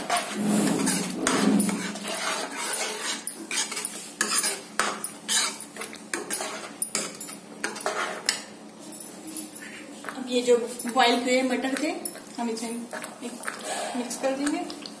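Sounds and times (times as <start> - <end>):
ladle scraping and knocking a pan: 0.0 - 5.6.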